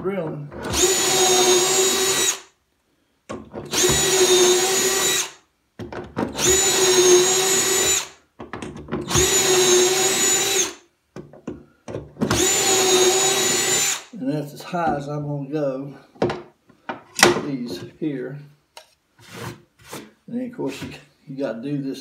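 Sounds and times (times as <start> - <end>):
cordless drill whining: 0.6 - 2.5, 3.6 - 5.4, 6.3 - 8.2, 9.0 - 10.8, 12.2 - 14.1.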